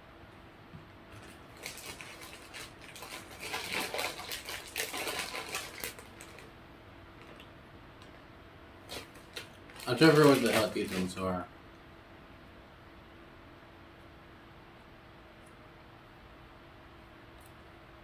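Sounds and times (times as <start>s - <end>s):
plastic wrapper crinkling: 1.2s - 6.5s, 8.9s - 11.4s.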